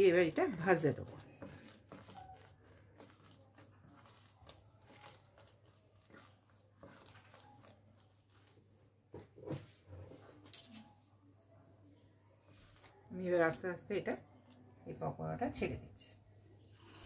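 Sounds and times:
batter squishing by hand: 0.0 - 11.1, 12.3 - 15.6.

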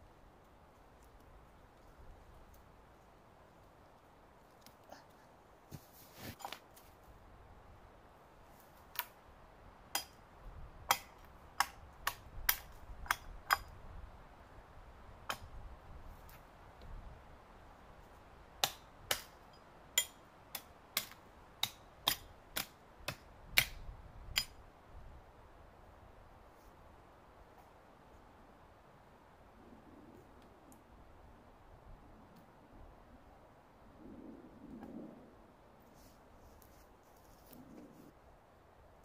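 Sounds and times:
hatchet chopping dry wood: 9.9 - 10.2, 10.8 - 13.7, 18.6 - 19.4, 20.0 - 24.6.

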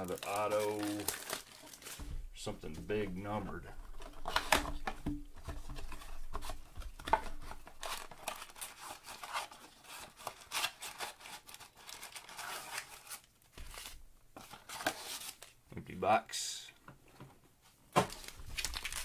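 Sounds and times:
wrapped packs crinkling: 0.0 - 2.1, 18.0 - 19.0.

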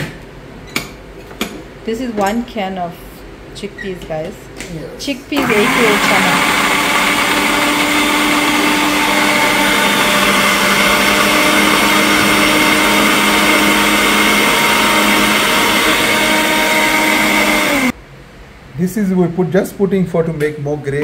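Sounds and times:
blender running: 5.3 - 18.0.

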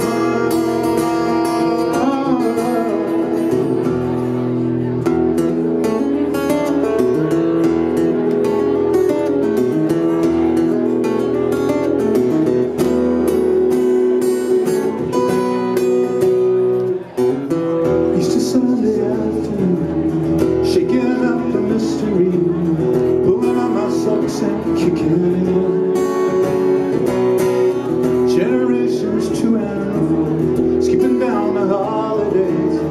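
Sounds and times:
man singing: 0.0 - 4.2, 17.5 - 32.9
acoustic guitar strumming: 0.0 - 32.9.

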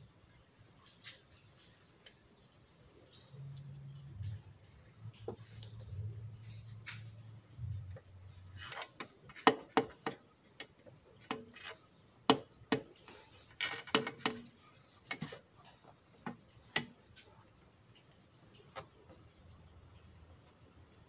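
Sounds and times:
metal clicks and knocks: 7.9 - 15.4.

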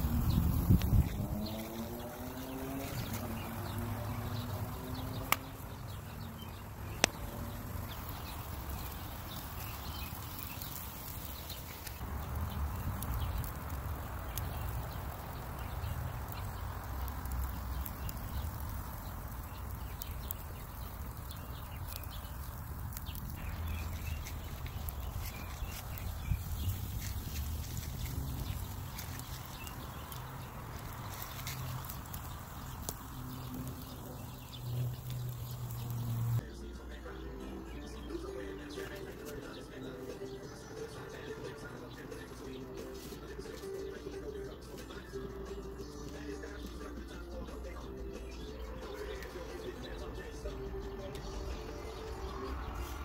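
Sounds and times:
wood fire crackling: 0.0 - 36.4
sharp pops: 5.2 - 5.6.

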